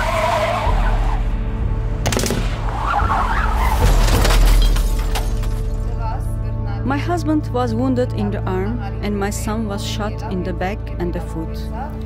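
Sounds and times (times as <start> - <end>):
low droning music: 0.0 - 12.0
gunshots: 2.0 - 2.7.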